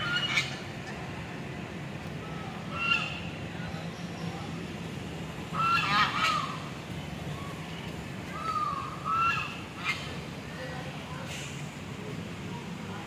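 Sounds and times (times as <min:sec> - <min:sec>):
ducks and geese calling: 0:00.0 - 0:01.0, 0:02.6 - 0:03.4, 0:05.5 - 0:06.7, 0:08.3 - 0:10.2.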